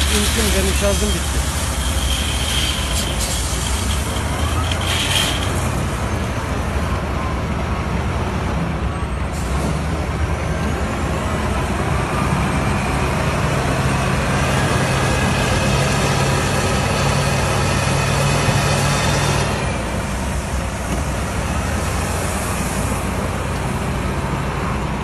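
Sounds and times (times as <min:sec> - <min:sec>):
short high-pitched hisses: 0:00.0 - 0:06.0
diesel engine running: 0:00.0 - 0:25.0.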